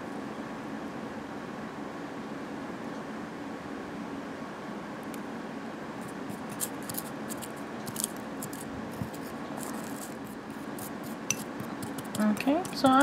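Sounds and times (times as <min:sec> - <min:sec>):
fan hum: 0:00.0 - 0:13.0
utensil scraping inside a bowl: 0:06.0 - 0:13.0.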